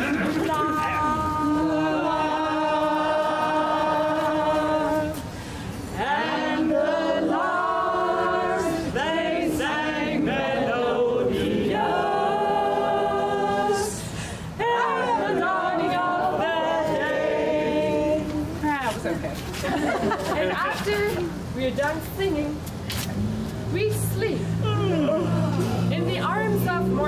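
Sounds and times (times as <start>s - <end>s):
group singing a cappella: 0.0s - 18.6s.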